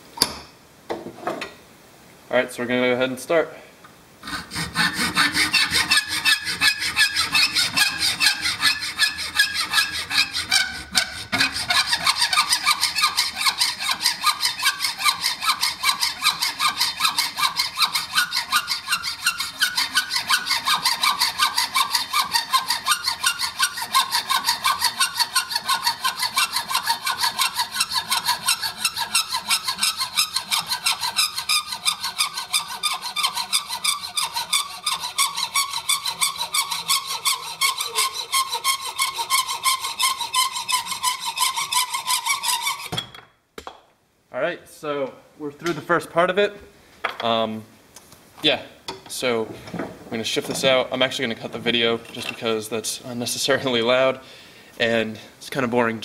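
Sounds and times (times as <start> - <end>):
hacksaw cutting: 4.2 - 43.0.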